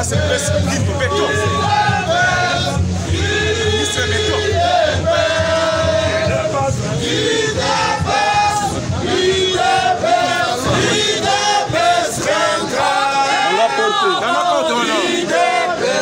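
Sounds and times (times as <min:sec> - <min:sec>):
crowd singing and chanting: 0:00.0 - 0:16.0.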